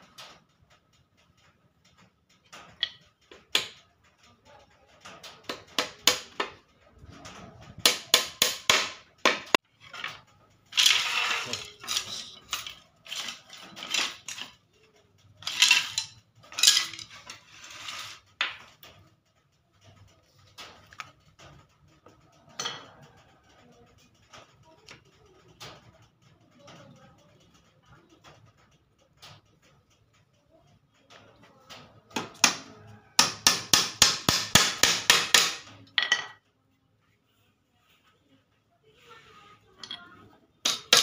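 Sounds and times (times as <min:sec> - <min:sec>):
wooden slats knocking and clattering: 0:01.9 - 0:03.8, 0:05.1 - 0:14.6, 0:15.4 - 0:19.0, 0:31.9 - 0:36.4, 0:40.6 - 0:41.0.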